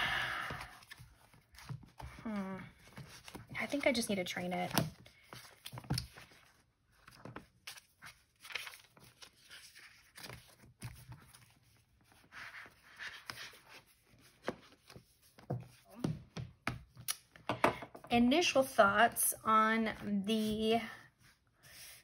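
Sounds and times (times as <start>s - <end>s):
paper pages flipping: 0.5s - 2.2s, 2.8s - 15.8s.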